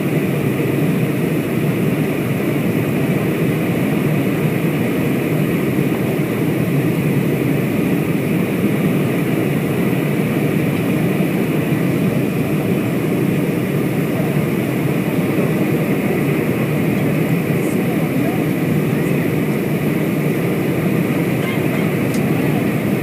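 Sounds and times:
airliner cabin engine noise: 0.0 - 23.0.

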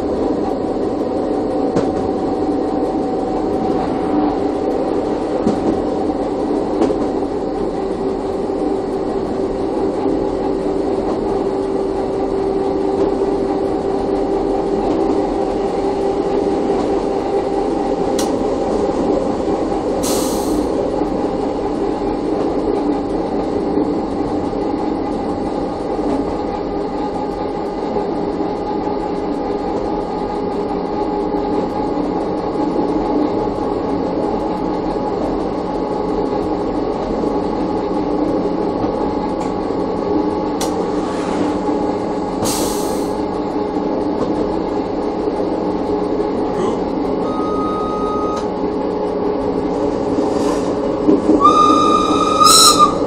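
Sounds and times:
train wheels rumbling: 0.0 - 47.8, 48.4 - 53.0
brief high tone: 47.2 - 48.5.

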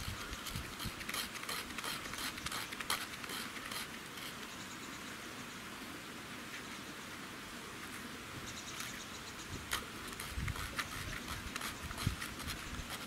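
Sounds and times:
knife scraping bark: 0.0 - 4.5, 9.7 - 13.0.

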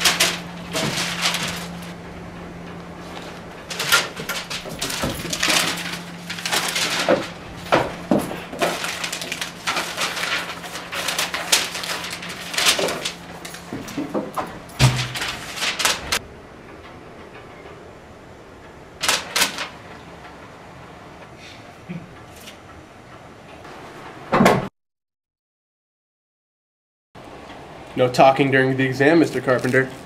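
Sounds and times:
paper rustling: 0.0 - 2.0, 3.0 - 16.2, 19.0 - 19.8, 29.1 - 30.0.

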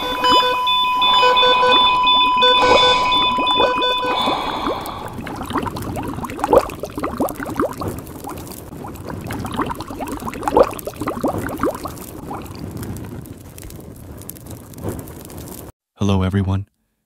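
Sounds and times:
water gulps: 0.0 - 13.0
water bubbling and gurgling: 0.0 - 14.0.

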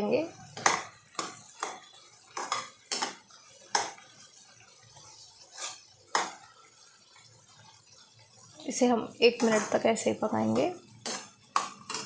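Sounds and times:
spoon scraping and knocking pan: 0.3 - 6.8, 9.2 - 12.0.

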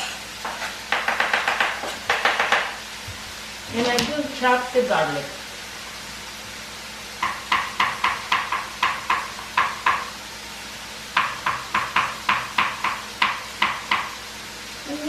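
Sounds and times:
knife chopping on cutting board: 0.4 - 2.8, 7.2 - 10.1, 11.2 - 14.2.

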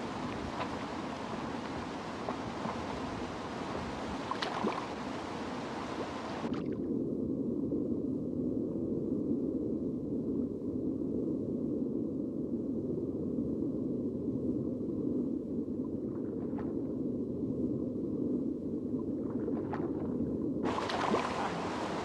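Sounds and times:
rushing river rapids: 0.0 - 6.5, 20.7 - 22.0
muffled underwater current rush: 0.0 - 6.8, 19.2 - 22.0.

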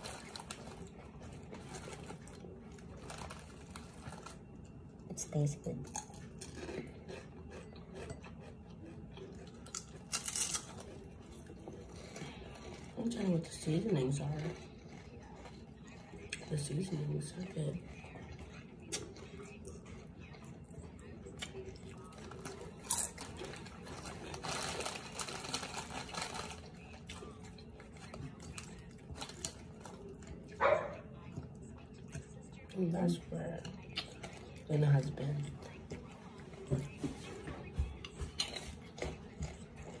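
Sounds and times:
plastic bag crinkling: 0.0 - 4.4, 22.1 - 27.4
crispy food crackling: 0.0 - 37.3.

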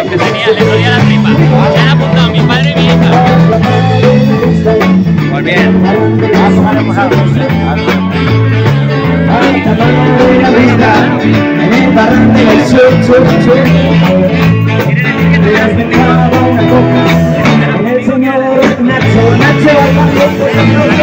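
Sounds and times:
bass line: 0.0 - 21.0
electric guitars playing: 0.0 - 21.0.

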